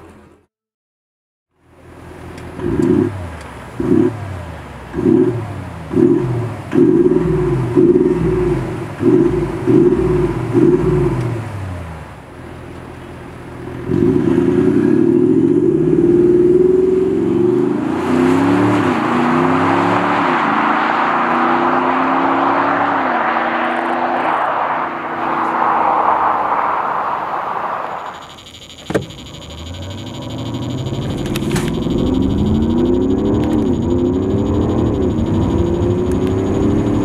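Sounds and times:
car engine revving and accelerating: 2.4s - 12.2s, 13.6s - 28.1s, 29.4s - 37.0s.

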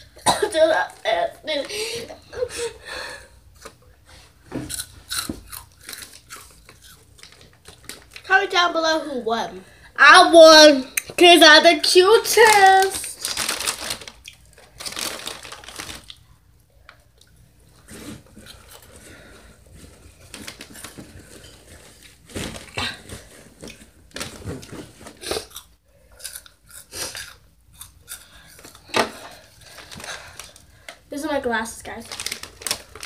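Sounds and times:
crunching and rustling: 12.4s - 16.2s, 17.7s - 25.6s, 31.9s - 33.0s.

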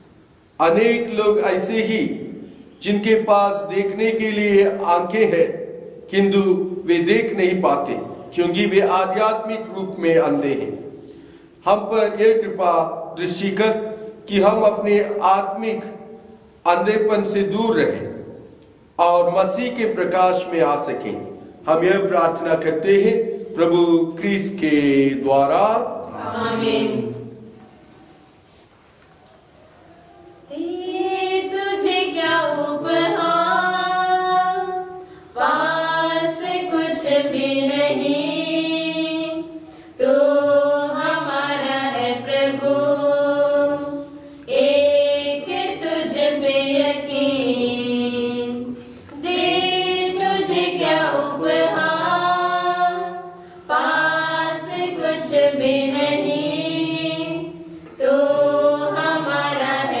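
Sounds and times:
choir singing a hymn: 19.0s - 27.7s, 30.4s - 60.0s.

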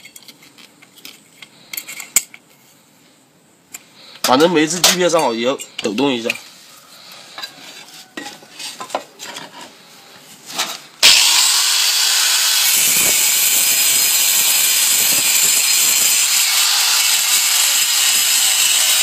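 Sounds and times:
angle grinder cutting tile: 11.0s - 19.0s.

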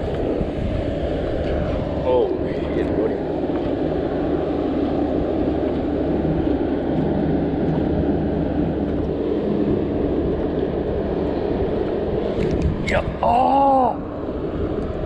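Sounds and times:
engine drone: 0.0s - 15.0s.

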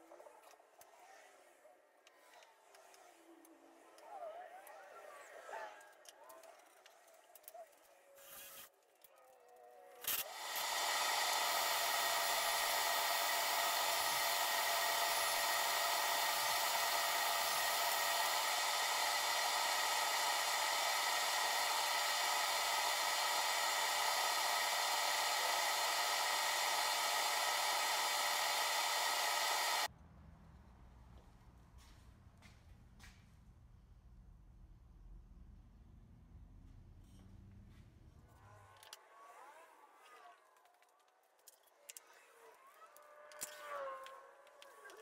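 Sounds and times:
table saw running: 10.2s - 29.9s.

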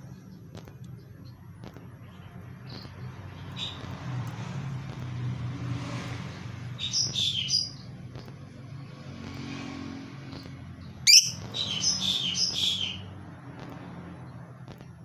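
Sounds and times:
lovebird chirping: 6.8s - 8.0s, 10.8s - 13.1s.

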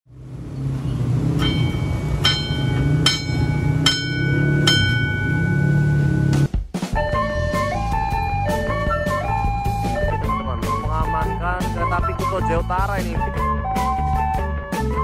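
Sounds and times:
low steady rumble: 0.1s - 6.5s
level-crossing bell ringing: 1.4s - 6.2s.

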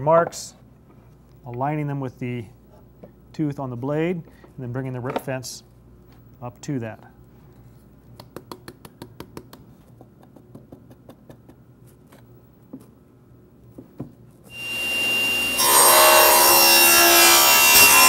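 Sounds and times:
table saw running: 14.5s - 18.0s.

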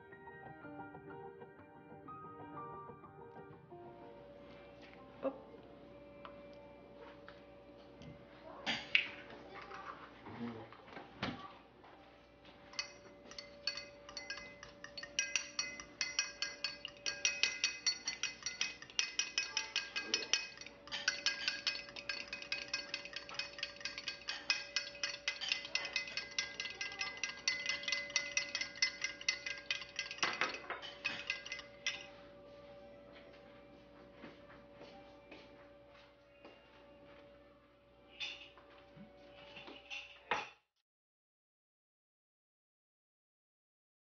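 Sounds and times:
spoon clinking against glass: 12.7s - 32.2s.

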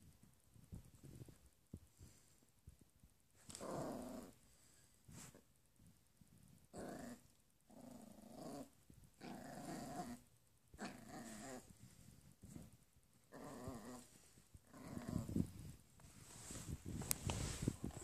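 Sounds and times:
puppy growling: 3.5s - 4.4s, 6.7s - 11.8s, 12.5s - 15.6s.

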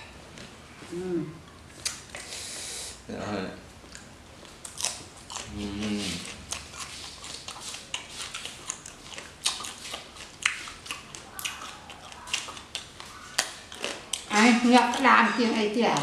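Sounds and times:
crunching and chewing: 3.8s - 16.0s.

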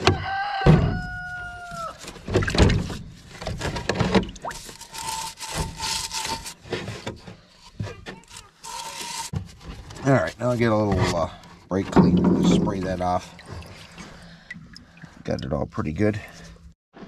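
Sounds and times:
rooster crowing: 0.0s - 2.0s
brush scrubbing metal hub: 4.5s - 6.6s, 7.6s - 9.4s.

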